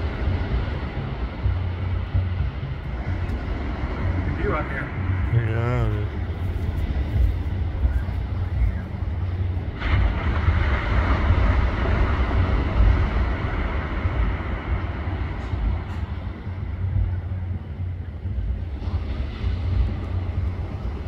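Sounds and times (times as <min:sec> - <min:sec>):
sea surf rushing: 0:00.0 - 0:21.0
wind buffeting microphone: 0:00.0 - 0:21.0.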